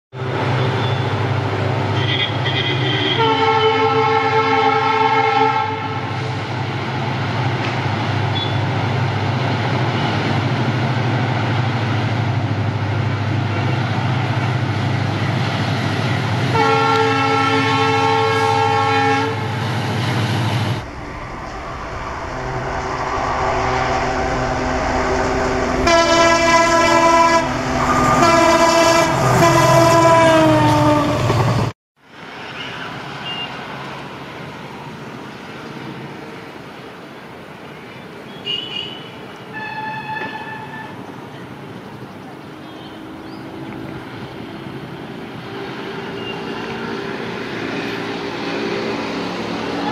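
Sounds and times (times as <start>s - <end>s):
diesel locomotive engine drone: 0.1s - 38.3s, 39.1s - 49.9s
train wheel and rail noise: 0.1s - 49.9s
passing train horn: 0.2s - 6.4s, 16.4s - 20.0s, 20.8s - 31.6s, 38.5s - 41.0s, 45.3s - 49.9s
multi-tone train horn: 0.3s - 6.3s, 16.5s - 19.6s, 23.6s - 31.4s, 38.5s - 41.0s, 45.4s - 48.2s, 49.7s - 49.9s.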